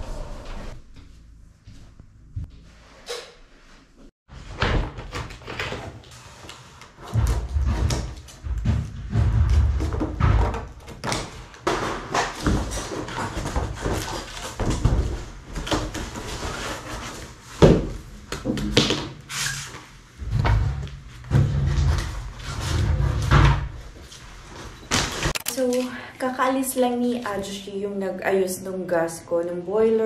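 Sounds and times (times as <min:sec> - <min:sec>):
knocks: 0:07.1 - 0:12.7.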